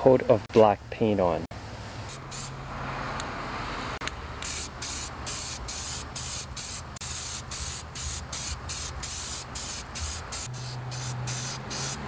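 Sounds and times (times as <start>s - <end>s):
spray can hissing: 2.1s - 2.6s, 4.4s - 12.0s.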